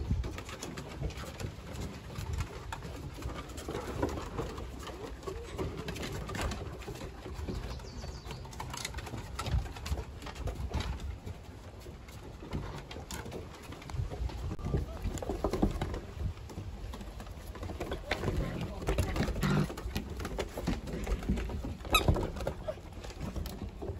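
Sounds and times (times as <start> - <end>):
claws clicking on wooden deck: 0.0 - 23.9
dogs play-growling: 19.2 - 22.8.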